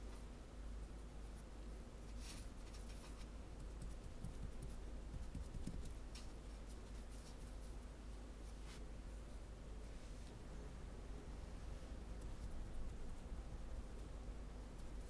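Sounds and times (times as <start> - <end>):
low hum: 0.0 - 15.0
fingers rubbing dough: 3.6 - 6.0.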